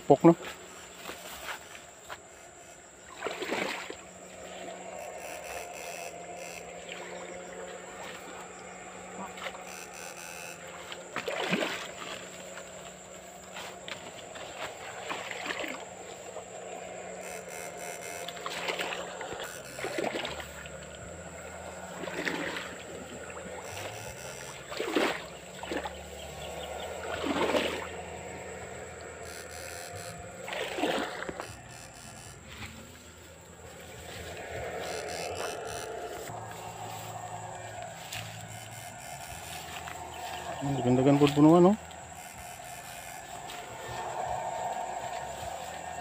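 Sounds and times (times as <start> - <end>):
water splashes: 3.0 - 4.8, 9.2 - 13.4, 14.0 - 16.5, 17.8 - 28.3, 29.9 - 31.9
thin high tone: 4.3 - 7.2, 9.6 - 10.9, 17.2 - 18.7, 19.4 - 20.7, 23.5 - 24.8, 29.2 - 33.1, 33.8 - 44.0.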